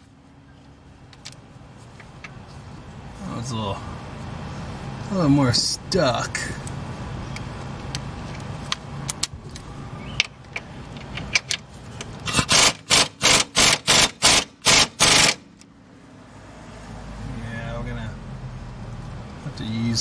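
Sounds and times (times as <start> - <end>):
impact wrench hammering: 12.3 - 15.4.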